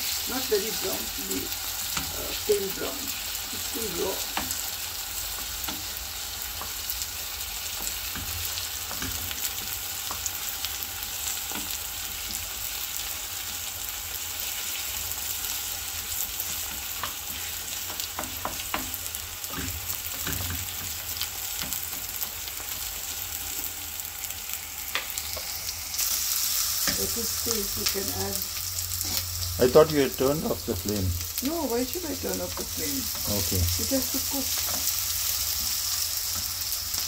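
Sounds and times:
onions sizzling in oil: 0.0 - 37.0
spatula scraping and tapping pan: 7.7 - 10.3, 16.4 - 22.8, 34.5 - 36.6.

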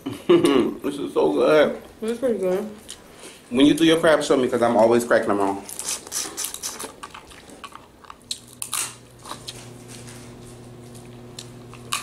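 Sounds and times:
chewing: 5.6 - 12.0.

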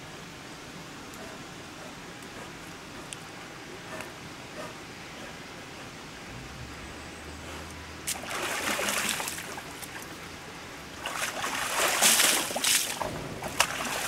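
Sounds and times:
bear splashing water: 7.7 - 14.0.

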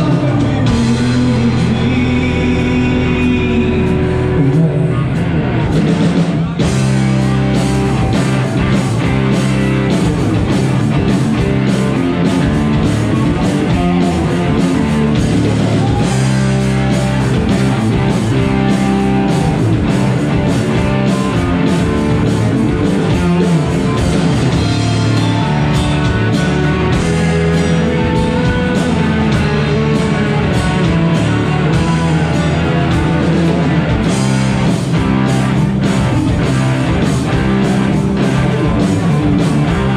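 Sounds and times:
drum kit beat: 0.0 - 39.9
electric guitars: 0.0 - 39.9.

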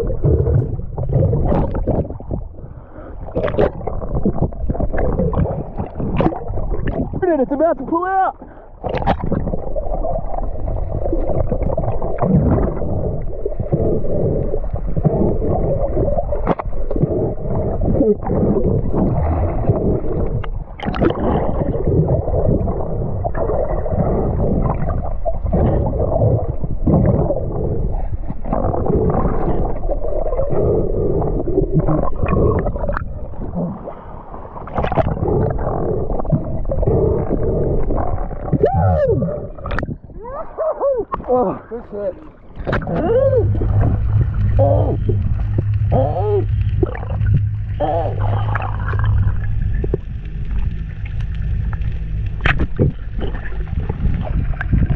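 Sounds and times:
underwater gurgling water: 0.0 - 54.9
sharp underwater clicks: 3.3 - 7.2, 8.8 - 9.6, 16.2 - 17.2, 18.8 - 22.6, 34.6 - 38.8, 39.6 - 40.0, 42.5 - 54.9.

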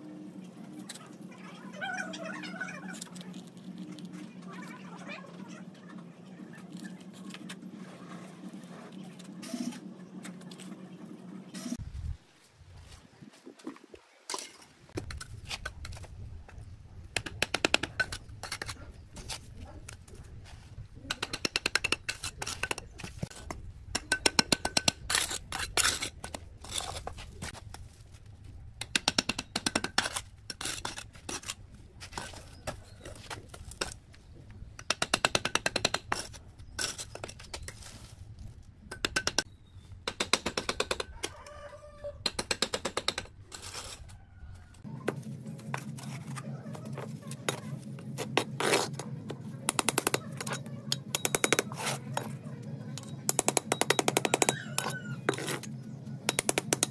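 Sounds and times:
trowel scraping and tapping bricks: 14.3 - 20.2, 21.0 - 28.2, 28.8 - 41.1, 45.0 - 56.9
steady low hum: 42.9 - 56.9.

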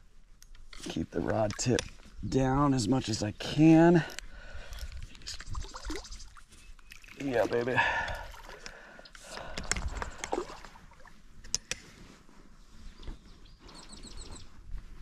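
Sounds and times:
water splashing: 5.3 - 8.6, 9.9 - 11.1.

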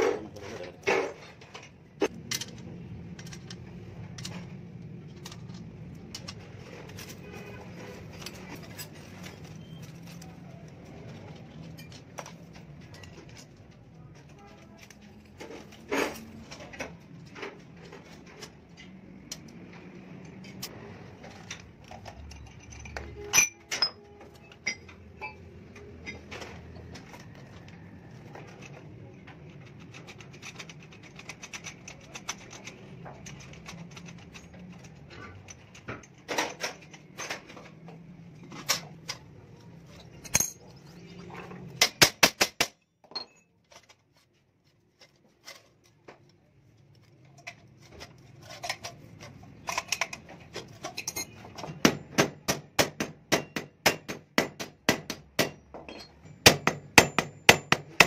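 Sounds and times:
metal parts clinking: 20.2 - 27.2, 38.4 - 40.9, 47.2 - 51.8, 55.7 - 56.4.

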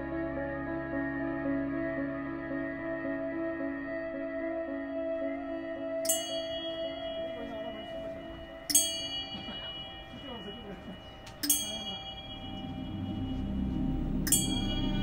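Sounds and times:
ambient music drone: 0.0 - 15.0
bell strikes ringing: 6.1 - 15.0.

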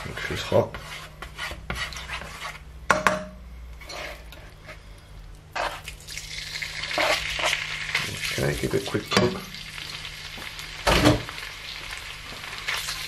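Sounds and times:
plastic spatula scraping frying pan: 0.0 - 2.7, 3.8 - 4.8, 5.6 - 5.8, 6.9 - 7.6
meat sizzling in hot oil: 5.7 - 13.0.

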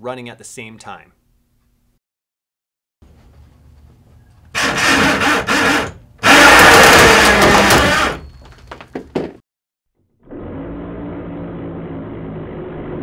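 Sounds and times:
loud harsh scraping of test rigs: 4.5 - 8.4.

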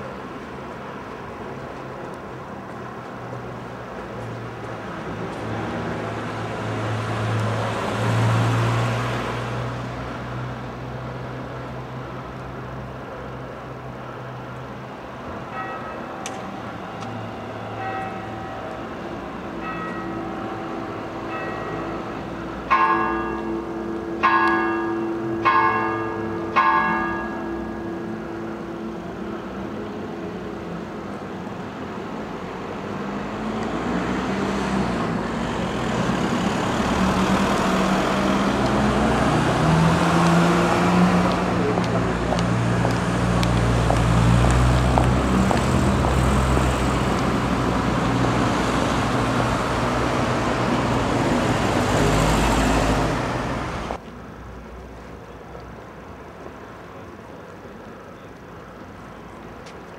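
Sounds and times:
vehicle engines passing: 0.0 - 59.9
church bell striking: 15.5 - 16.7, 17.7 - 29.2.

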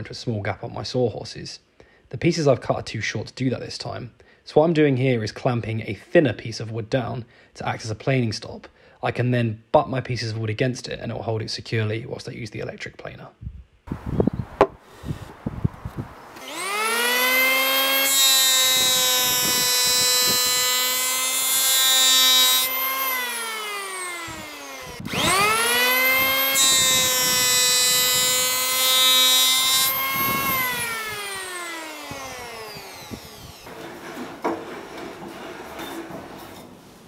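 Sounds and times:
electric planer motor whine: 16.3 - 33.7
planer shaving wood: 16.3 - 36.5.

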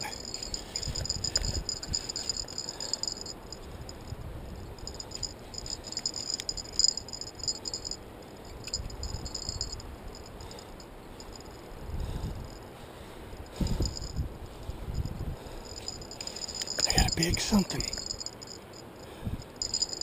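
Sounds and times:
wind rumble on microphone: 0.0 - 2.5, 3.4 - 7.6, 8.5 - 10.5, 11.7 - 12.7, 13.3 - 17.5, 19.1 - 19.8
fishing reel clicking and ratcheting: 0.2 - 3.4, 4.8 - 8.0, 17.8 - 18.6, 19.6 - 20.0.

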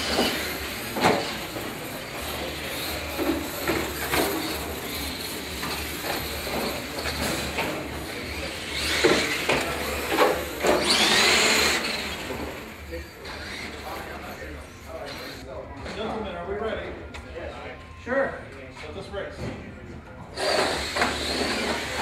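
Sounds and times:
toy trucks running: 0.0 - 15.4, 20.4 - 22.0.

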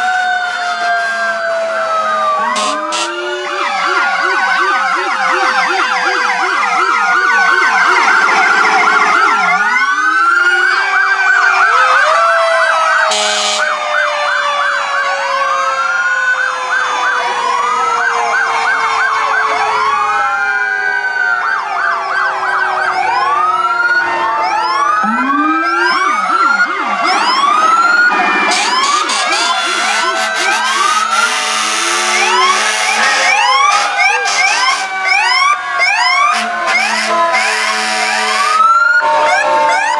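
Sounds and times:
fire truck sirens wailing: 0.0 - 39.9
sharp horn blast: 2.6 - 3.2, 28.2 - 33.3.

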